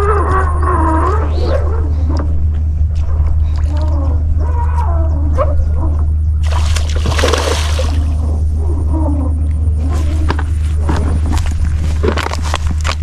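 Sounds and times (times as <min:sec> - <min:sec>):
steady low rumble: 0:00.0 - 0:13.0
fish splashing and thrashing: 0:06.4 - 0:08.5.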